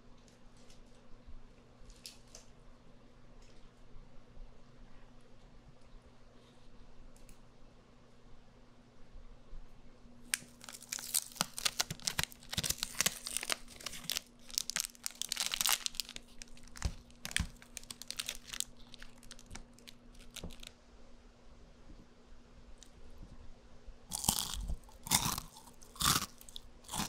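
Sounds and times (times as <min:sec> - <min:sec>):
cellophane wrappers crinkling: 0:10.3 - 0:20.7, 0:24.1 - 0:27.0.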